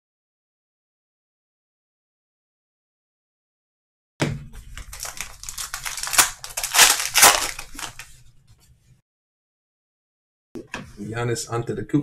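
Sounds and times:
wrapper tearing and crinkling: 4.8s - 8.1s.

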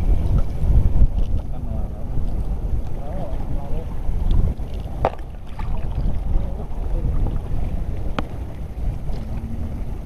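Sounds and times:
choppy sea: 0.0s - 10.0s
wind buffeting microphone: 0.0s - 10.0s.

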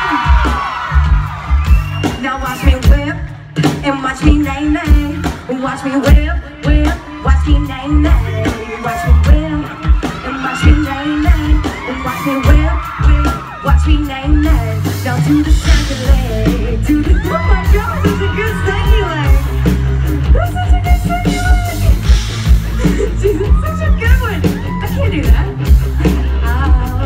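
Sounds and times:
live country-pop band: 0.0s - 27.0s
woman singing into a microphone: 2.0s - 19.5s, 22.8s - 27.0s.

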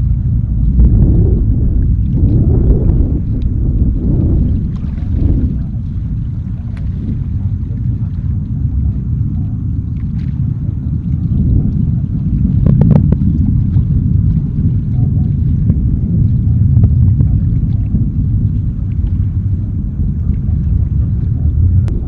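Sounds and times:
rocket engine rumble: 0.0s - 22.0s.

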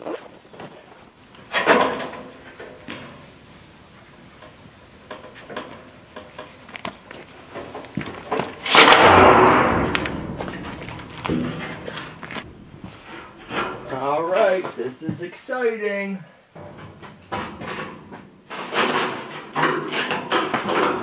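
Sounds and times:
metal roofing sheets clattering: 1.4s - 14.8s, 16.6s - 21.0s
metal sheet wobbling rumble: 8.7s - 13.9s.

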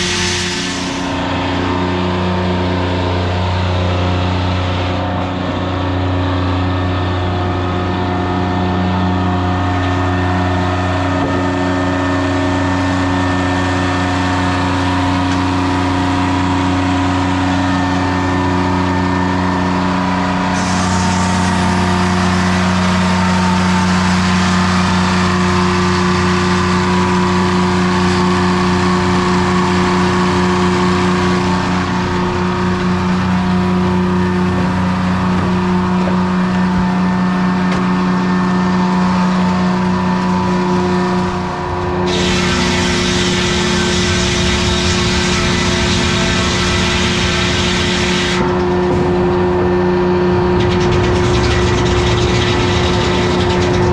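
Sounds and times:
two-stroke diesel engine running: 0.0s - 53.9s
circular saw turning over: 42.0s - 49.0s, 50.3s - 53.9s.

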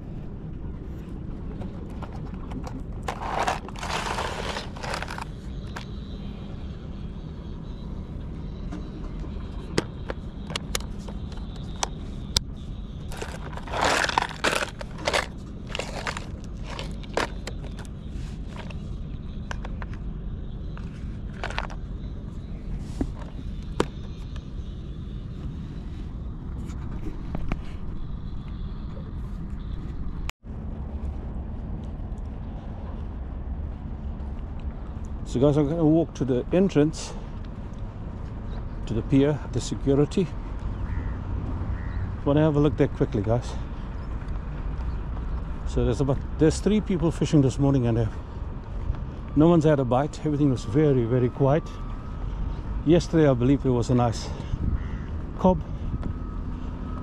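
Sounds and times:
steady low rumble: 0.0s - 42.0s
plastic box scraping and rattling: 1.9s - 5.9s, 13.1s - 17.9s, 21.3s - 21.8s.

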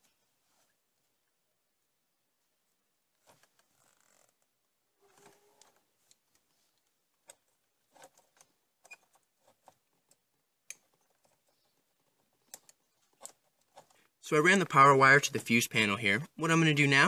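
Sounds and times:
wiring rustling and clicking: 3.1s - 14.3s.

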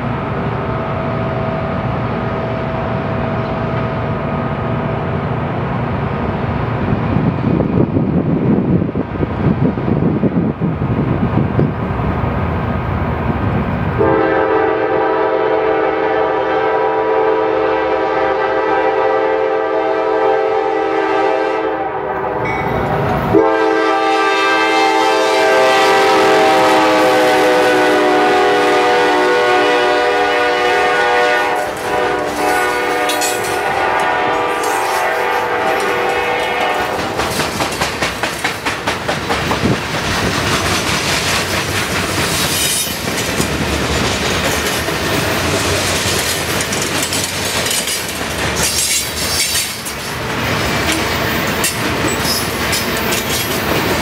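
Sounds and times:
locomotive horn blasts: 14.0s - 22.5s, 23.3s - 37.2s.

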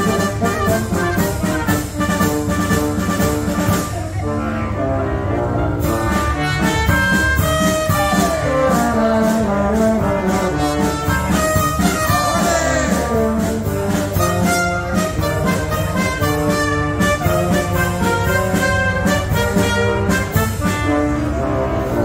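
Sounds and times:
drum kit beats: 0.0s - 4.1s, 6.1s - 20.9s
brass melody: 0.0s - 22.0s
clarinets and saxophones: 0.0s - 22.0s.

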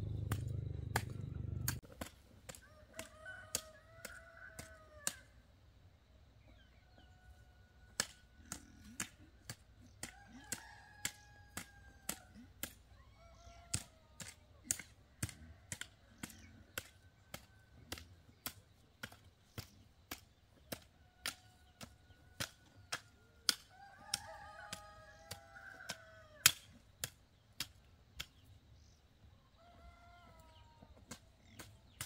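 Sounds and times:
sharp clicks: 0.1s - 1.8s
chickens calling: 6.5s - 32.0s.

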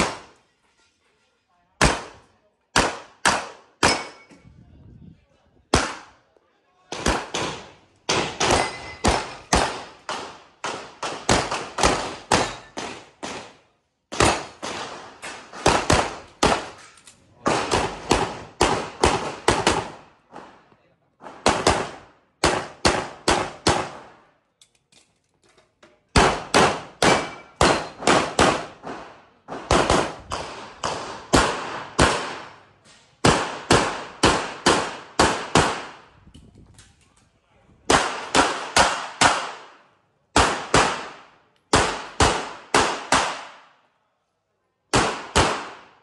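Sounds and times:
rapid pistol fire: 6.9s - 13.5s, 26.2s - 32.6s, 33.2s - 36.0s, 40.4s - 43.6s, 44.9s - 46.0s.

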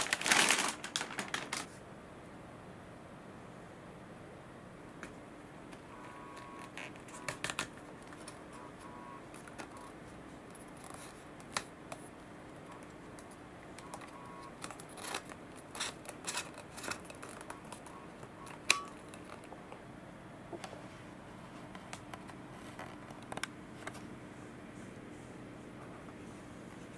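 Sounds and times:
paddle parts clicking and rattling: 13.9s - 17.9s.

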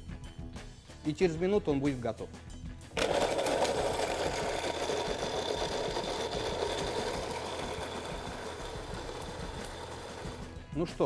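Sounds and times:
blender whirring: 3.0s - 10.5s.

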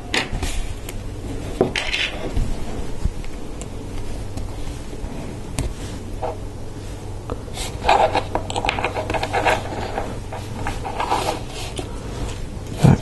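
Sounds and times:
plastic parts clicking and scraping: 7.7s - 11.9s.

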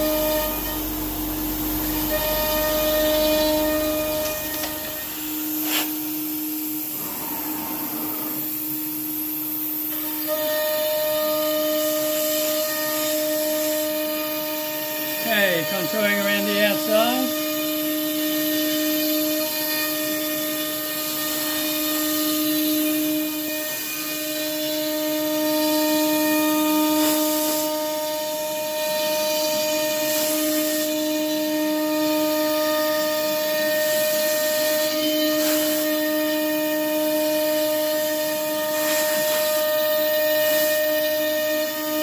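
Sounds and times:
air nozzle hissing: 0.0s - 11.1s, 35.3s - 36.1s, 36.8s - 42.0s
router spindle whining: 0.0s - 26.9s, 30.8s - 42.0s.

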